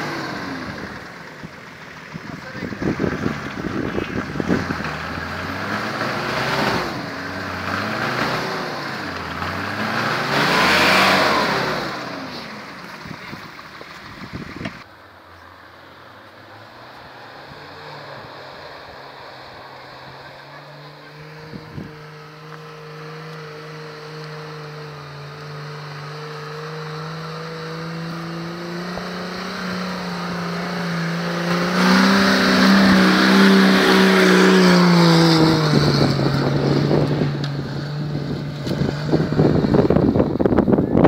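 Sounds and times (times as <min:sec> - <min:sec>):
engine pulling at low revs: 0:00.0 - 0:41.0
wind buffeting microphone: 0:02.2 - 0:05.2, 0:13.0 - 0:14.8, 0:21.4 - 0:22.1, 0:32.7 - 0:41.0.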